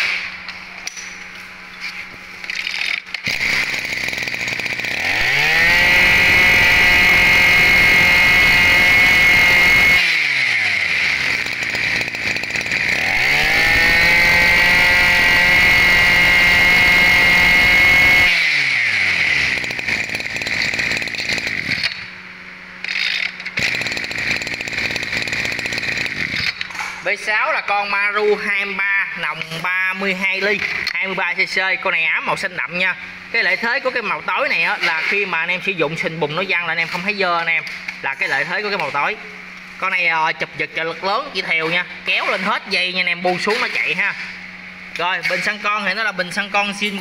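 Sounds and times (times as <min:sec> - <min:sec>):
brush cutter engine revving: 0:02.5 - 0:22.1, 0:22.8 - 0:27.0, 0:33.2 - 0:35.6, 0:41.3 - 0:47.0.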